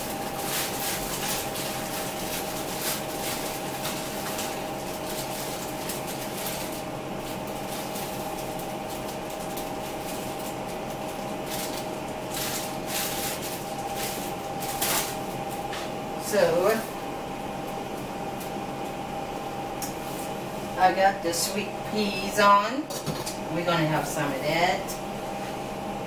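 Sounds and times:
plastic bag crinkling: 0.0s - 15.7s
two-tone electrical hum: 0.0s - 26.0s.

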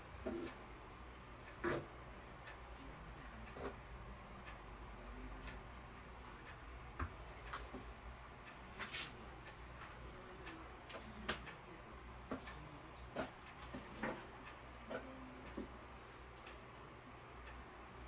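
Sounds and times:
faint low hum: 0.0s - 18.0s
light sharp clicks and taps: 6.3s - 7.9s.

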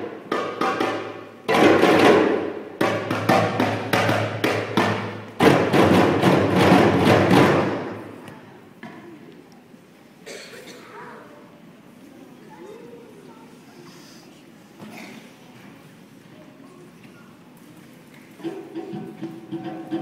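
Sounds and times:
children playing hand drums: 0.0s - 9.2s, 17.4s - 20.0s.

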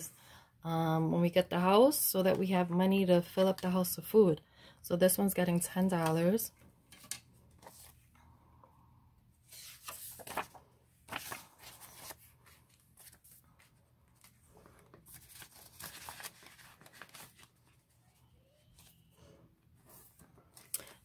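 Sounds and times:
plastic binder pocket crinkling: 9.5s - 17.9s
paper banknotes rustling: 9.5s - 18.0s.

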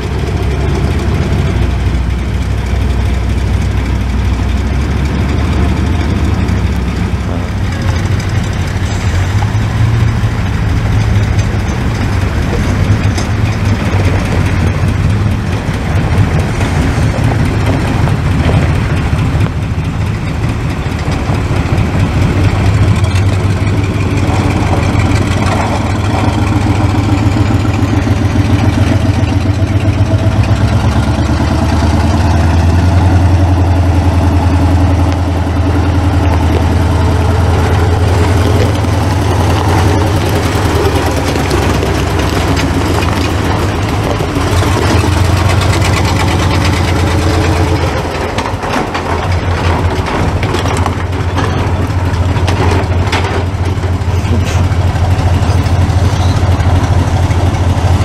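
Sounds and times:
engines rumbling at low revs: 0.0s - 58.0s
truck engine approaching: 0.0s - 58.0s.

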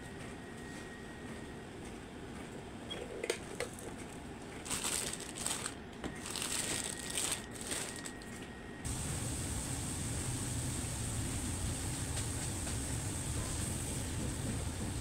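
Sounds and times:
crinkling and crunching handling noise: 3.5s - 8.5s
steady low hum: 3.9s - 15.0s.

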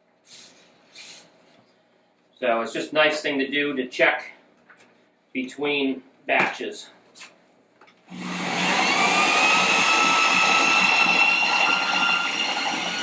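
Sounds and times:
electric drill whining: 8.1s - 13.0s
grain grinding in a mill: 8.2s - 13.0s.

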